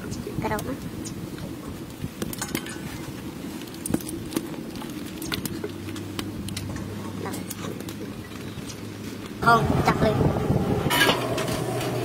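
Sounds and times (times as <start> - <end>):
steady low rumble: 0.0 - 12.0
dishes clicking and knocking: 2.2 - 3.0.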